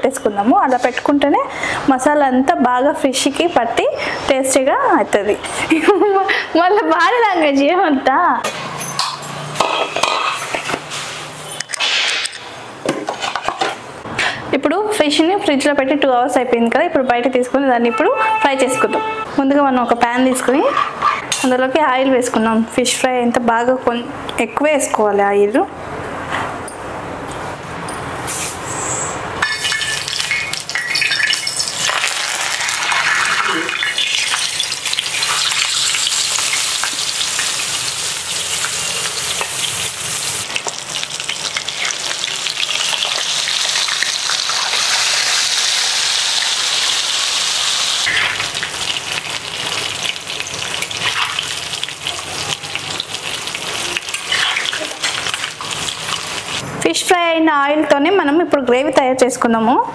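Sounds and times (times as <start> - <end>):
metal spatula scraping pan: 20.2 - 21.5, 54.1 - 55.4
fish sizzling in hot oil: 29.4 - 56.6.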